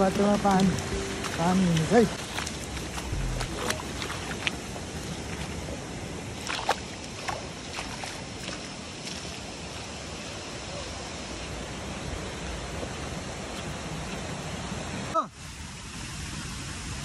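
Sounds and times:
footsteps splashing in water: 0.0s - 10.0s
shallow running water: 0.0s - 17.0s.

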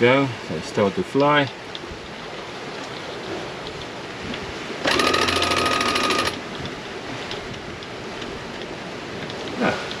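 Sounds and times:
wind and water hiss: 0.0s - 4.9s, 6.4s - 10.0s
winch motor whine: 4.8s - 6.4s
winch ratchet clicking: 4.8s - 6.4s.

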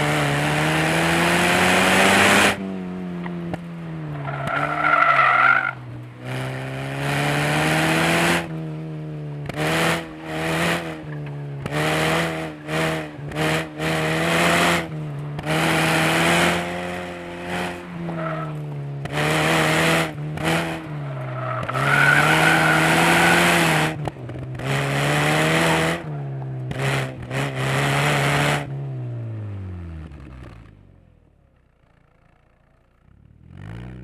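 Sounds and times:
tires squealing: 4.0s - 5.9s, 17.6s - 18.7s, 20.6s - 24.0s.

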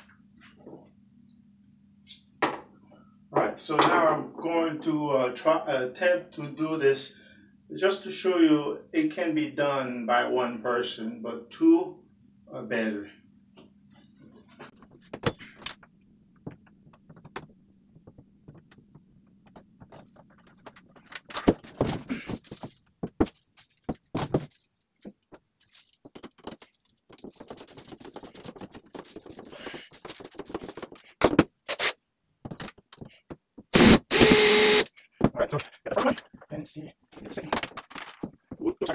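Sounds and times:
cordless drill starting: 33.8s - 34.9s.

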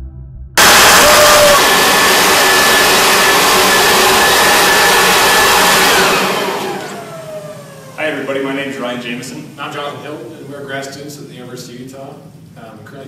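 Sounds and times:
leaf blower running: 0.6s - 8.9s.

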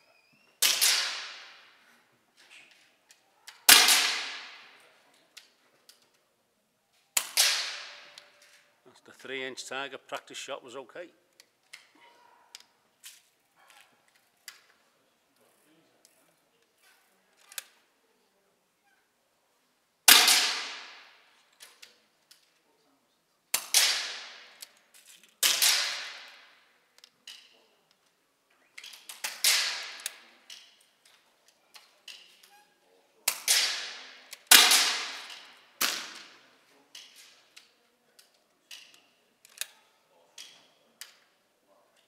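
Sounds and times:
air rifle shots cracking: 0.6s - 1.7s, 3.7s - 4.7s, 7.2s - 8.1s, 20.1s - 21.1s, 25.4s - 26.5s, 33.3s - 36.4s.

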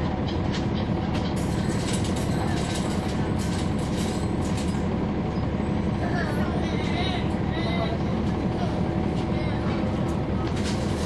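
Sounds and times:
bus diesel engine drone: 0.0s - 11.0s
rattles and clicks: 0.2s - 4.9s, 10.1s - 11.0s.

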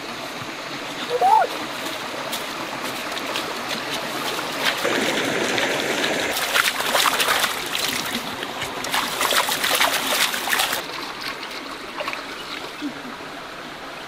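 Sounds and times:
stream trickling over rocks: 0.0s - 14.0s
hands splashing in water: 2.3s - 11.4s.

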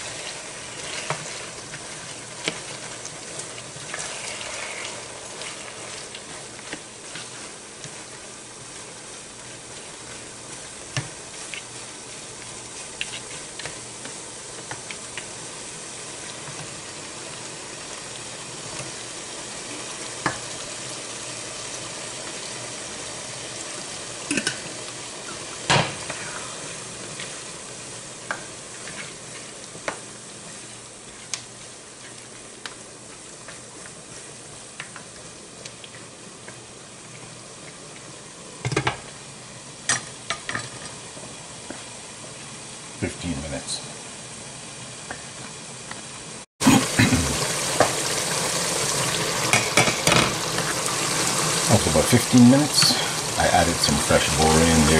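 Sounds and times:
food sizzling in a frying pan: 0.0s - 54.9s
spatula scraping the pan: 0.1s - 3.0s.

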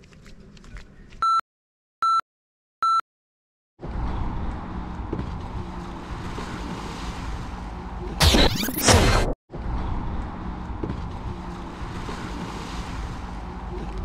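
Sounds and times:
wind: 0.0s - 1.4s, 3.8s - 8.2s, 8.9s - 14.0s
person splashing into water: 6.0s - 7.6s, 11.9s - 13.3s.

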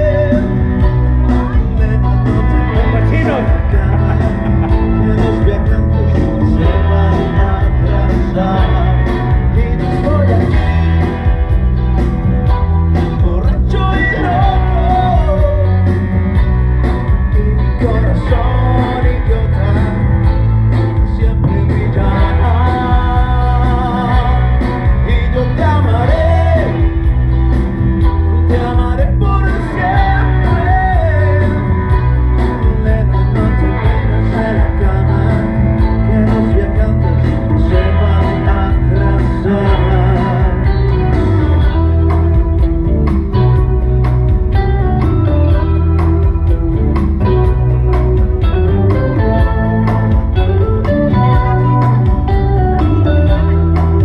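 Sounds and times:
man singing into a microphone: 0.0s - 11.3s, 13.0s - 16.1s, 17.1s - 27.1s, 28.4s - 42.2s
amplified backing music: 0.0s - 54.0s.

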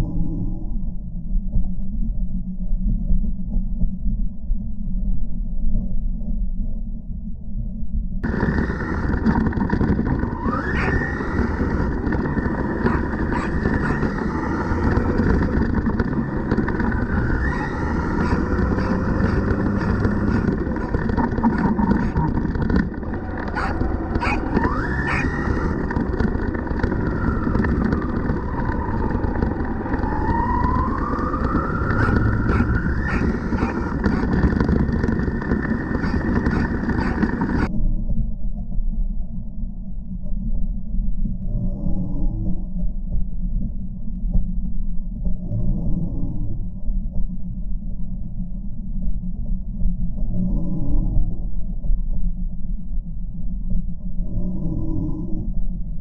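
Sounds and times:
wind: 7.8s - 56.0s
electric motor whine: 8.2s - 37.7s
tyres rumbling on dirt: 8.2s - 37.7s.

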